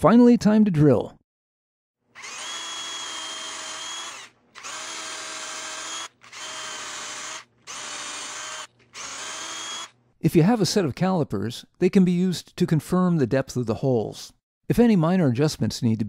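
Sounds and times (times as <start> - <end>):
cordless drill boring through steel: 2.2 - 10.0.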